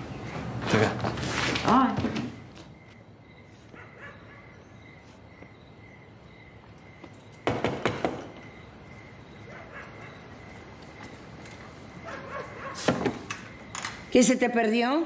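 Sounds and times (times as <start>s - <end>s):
crickets chirping: 0.0s - 15.0s
loud knocks on a door: 7.4s - 8.4s.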